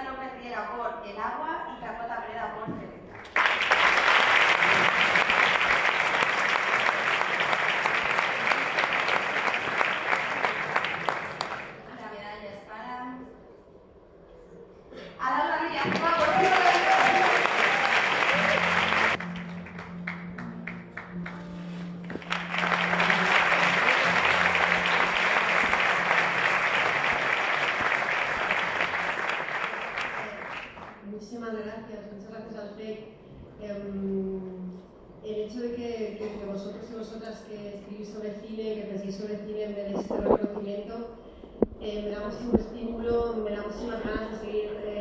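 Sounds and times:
crowd applauding: 3.2 - 11.8, 15.8 - 31.0.

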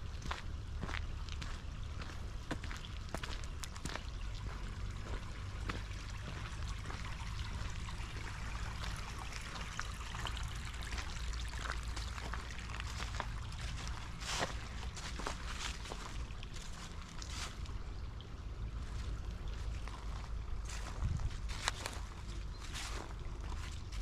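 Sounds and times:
low rumble: 0.0 - 23.9
running water rushing: 1.2 - 24.0.

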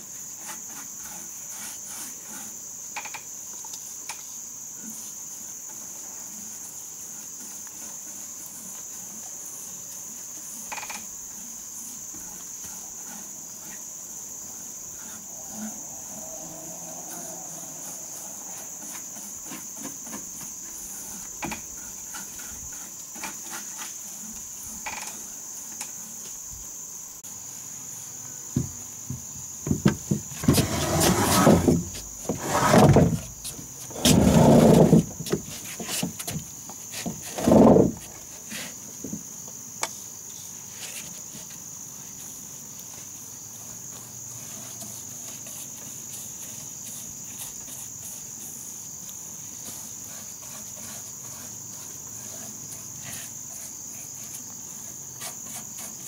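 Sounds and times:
insects trilling: 0.0 - 56.0
wooden bench knocking on floor: 28.6 - 31.0.

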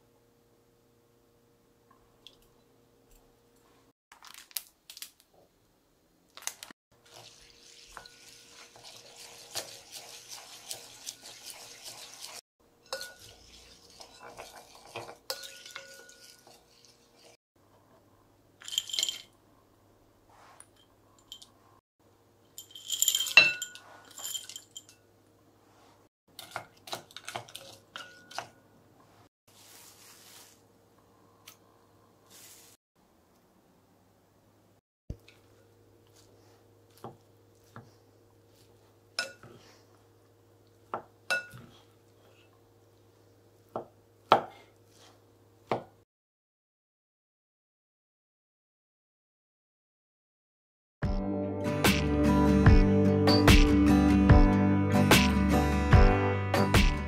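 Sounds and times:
water pouring: 7.0 - 17.0
spoon scraping wet rice in pot: 7.1 - 17.4
ringing metallic clinks: 22.6 - 25.0.

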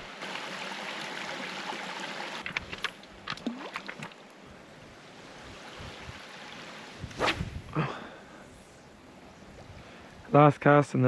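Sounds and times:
stones clicking underfoot: 2.4 - 4.1.

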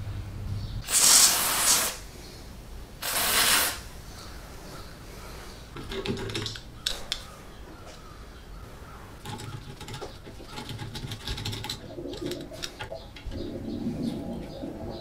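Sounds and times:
bird cooing: 6.8 - 15.0.

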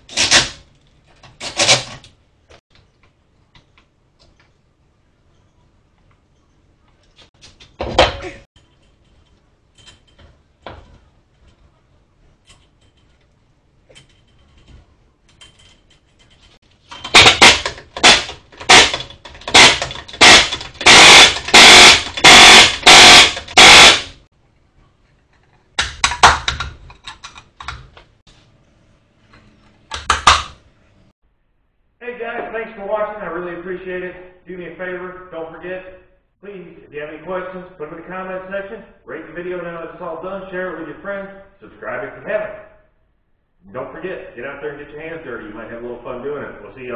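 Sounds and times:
impact wrench bursts: 16.9 - 24.3.

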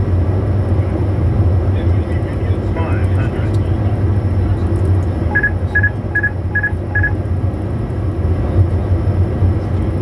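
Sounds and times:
flight deck low rumble: 0.0 - 10.0
cockpit alert beeping: 5.3 - 7.2.

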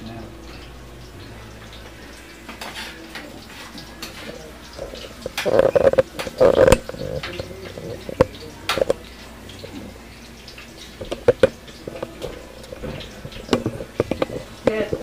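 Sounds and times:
metal spoon scraping a frying pan: 2.6 - 9.0, 11.1 - 15.0.

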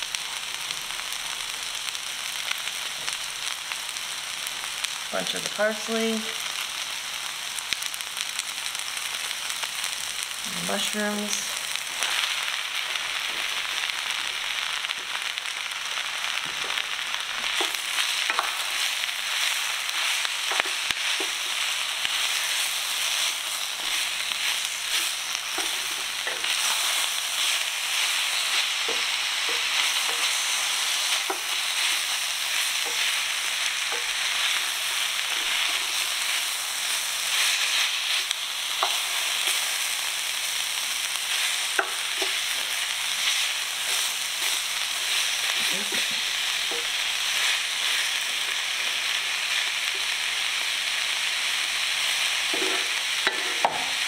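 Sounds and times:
vegetables sizzling in oil: 0.0 - 54.0.

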